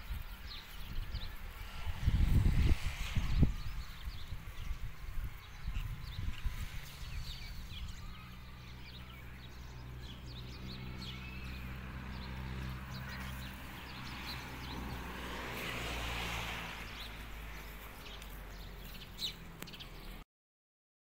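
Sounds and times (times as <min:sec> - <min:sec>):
small birds chirping: 0:00.0 - 0:20.2
engine humming low: 0:07.4 - 0:20.2.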